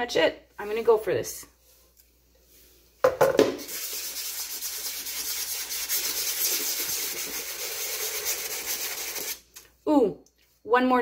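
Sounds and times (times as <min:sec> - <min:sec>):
sandpaper rubbing on resin: 0:03.7 - 0:09.4.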